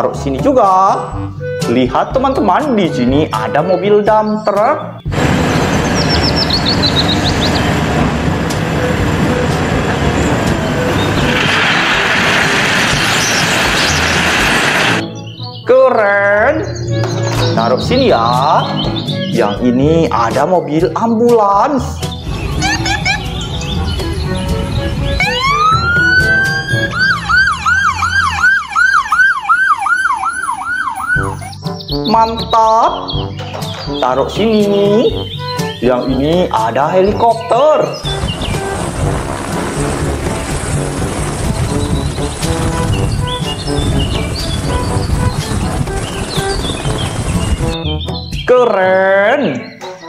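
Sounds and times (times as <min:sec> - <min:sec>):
bird chirps: 0:04.1 - 0:07.9, 0:12.9 - 0:19.8, 0:22.0 - 0:27.2, 0:30.2 - 0:36.3, 0:36.9 - 0:38.7, 0:41.6 - 0:50.0
diesel engine running: 0:05.1 - 0:15.0, 0:38.1 - 0:47.8
gravel sliding hiss: 0:05.1 - 0:15.0, 0:38.0 - 0:47.8
ambulance siren wailing and yelping: 0:22.5 - 0:31.8.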